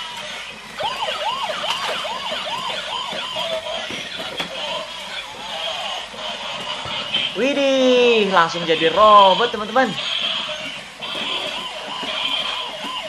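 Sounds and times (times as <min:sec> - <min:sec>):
toy police siren whooping: 0:00.1 - 0:06.0, 0:10.0 - 0:13.0.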